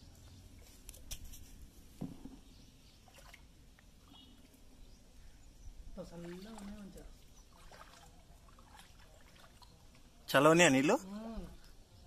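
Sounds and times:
bare feet wading in water: 3.0 - 4.8, 5.9 - 10.3.

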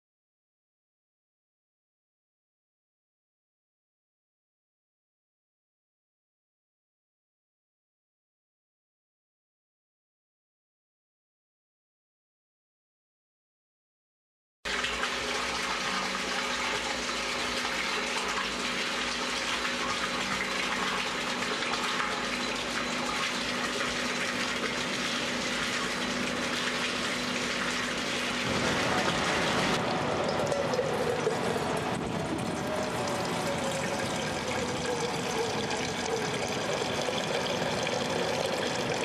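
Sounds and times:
water gushing into a metal jug: 14.7 - 39.0
water pouring into a tank: 14.7 - 39.0.

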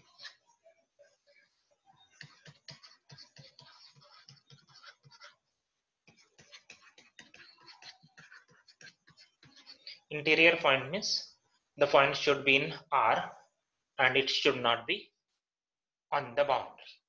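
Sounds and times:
stylus tapping and scratching: 2.0 - 5.4, 6.0 - 10.1.

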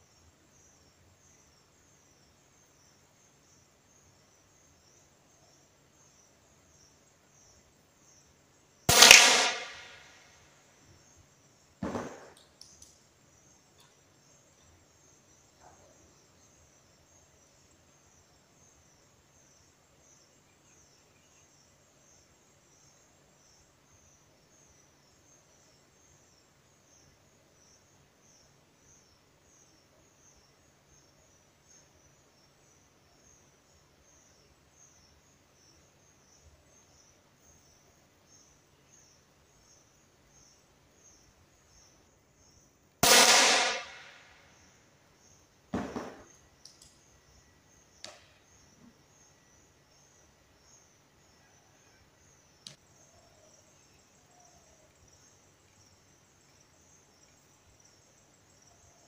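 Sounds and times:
insects chirping: 0.0 - 59.0
air pistol shot: 8.9 - 10.2, 11.8 - 12.4, 43.0 - 44.3.

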